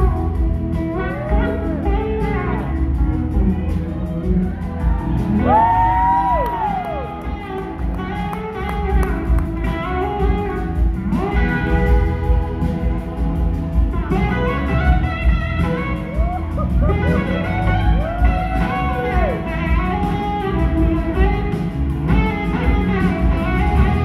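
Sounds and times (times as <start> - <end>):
live rock blues band: 0.0 - 24.0
electric slide guitar solo: 14.1 - 24.0.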